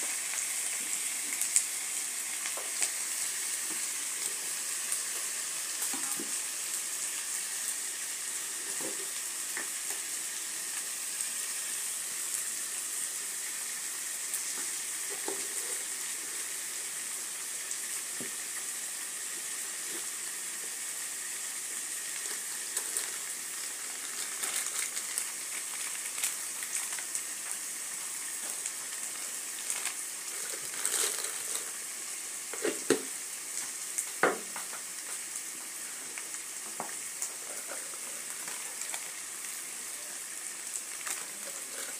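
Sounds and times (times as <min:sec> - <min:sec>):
chicken sizzling in oil: 0:00.0 - 0:41.9.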